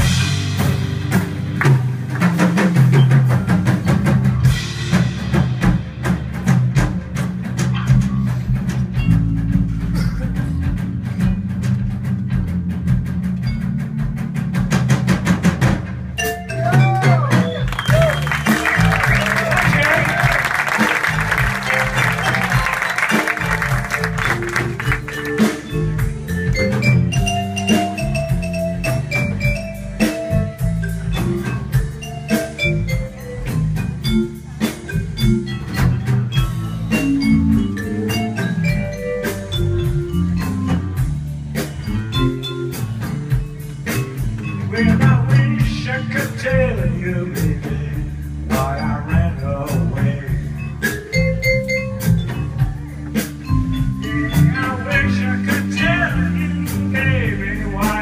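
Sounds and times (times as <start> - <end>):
drum kit: 0.0 - 58.0
electric bass: 0.0 - 58.0
keyboards: 0.0 - 58.0
applause: 17.6 - 25.5.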